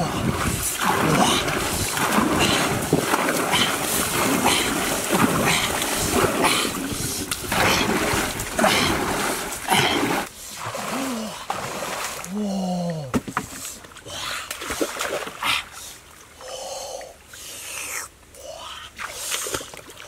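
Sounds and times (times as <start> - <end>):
paddle splashing through water: 0.0 - 12.3.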